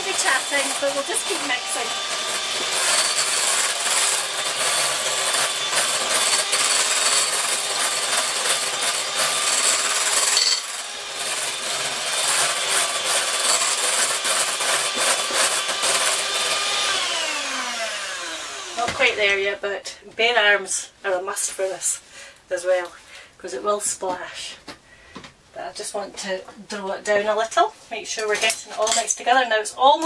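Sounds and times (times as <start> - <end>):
electric hand mixer running: 0.0 - 19.2.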